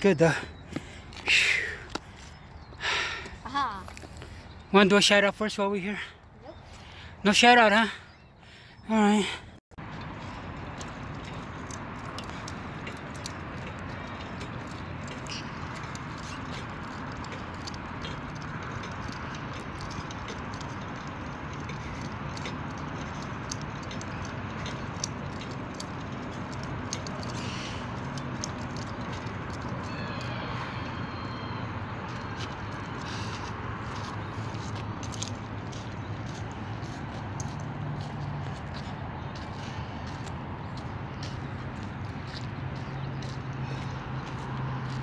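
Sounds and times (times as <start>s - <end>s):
outdoor background noise: 0.0s - 45.0s
faint clicks and ticks: 10.0s - 29.9s.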